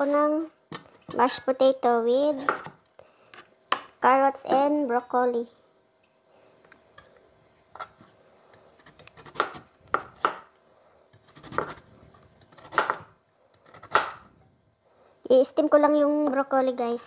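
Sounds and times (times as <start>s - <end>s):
knife chopping on plastic board: 2.4s - 2.8s, 8.8s - 10.5s, 11.3s - 11.8s, 12.5s - 14.3s.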